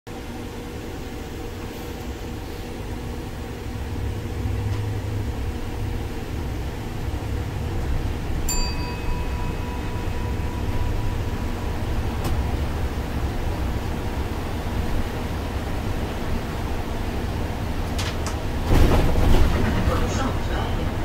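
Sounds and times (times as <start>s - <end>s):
bus engine rumble: 0.1s - 21.0s
bright chime: 8.5s - 12.2s.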